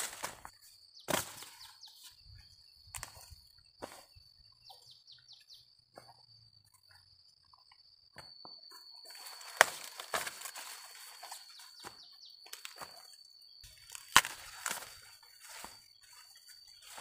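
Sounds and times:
dry corn leaves rustling: 0.0s - 0.5s, 1.1s - 2.1s, 9.1s - 13.1s, 13.7s - 17.0s
high-pitched insect buzz: 0.0s - 17.0s
stalks snapping: 13.7s - 15.0s.

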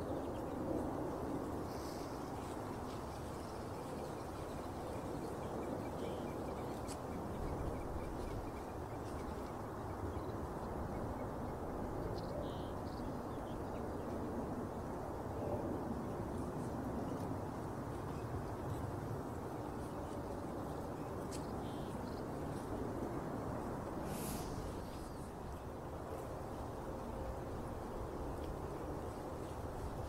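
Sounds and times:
outdoor background noise: 0.0s - 30.0s.

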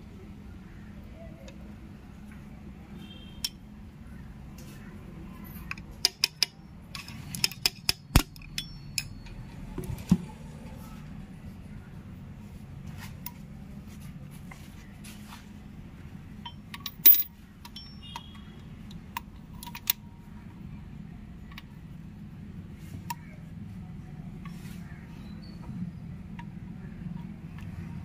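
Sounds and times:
metallic clicks and clinks: 5.7s - 9.5s, 16.4s - 20.1s.

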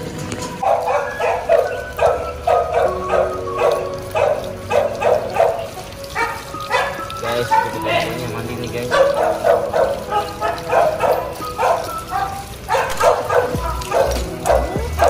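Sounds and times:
dog barking: 0.6s - 15.0s.

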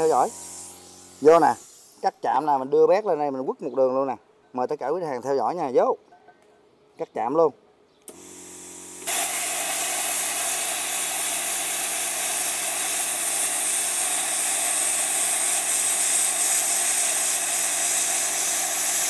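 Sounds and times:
plasma cutter hissing: 0.0s - 2.5s, 8.2s - 19.0s.

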